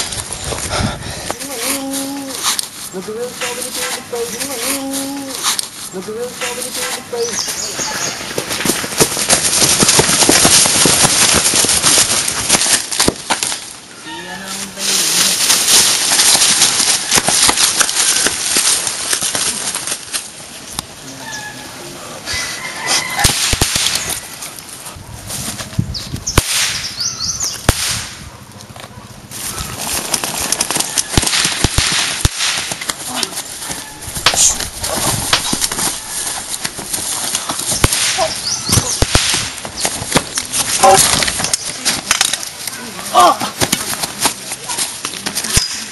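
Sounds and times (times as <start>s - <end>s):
sharp cracks and bangs: 8.3s - 13.8s, 15.3s - 20.3s, 23.2s - 24.2s, 26.3s - 28.2s, 30.1s - 33.1s, 34.2s - 42.7s
steady rushing hiss: 29.1s - 43.0s.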